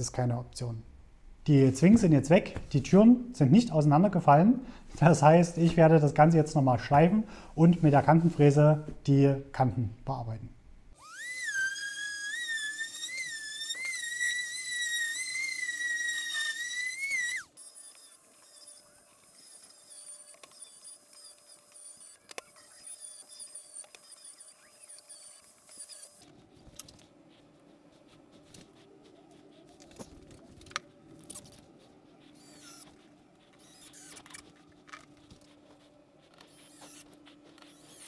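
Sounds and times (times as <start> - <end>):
power tool motor whining: 11.0 - 26.2, 32.4 - 33.0, 33.6 - 34.5, 36.4 - 38.0.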